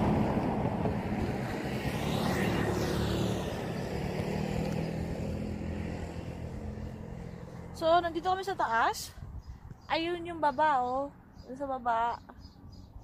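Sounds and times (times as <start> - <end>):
vehicle engine passing: 0.0 - 9.1.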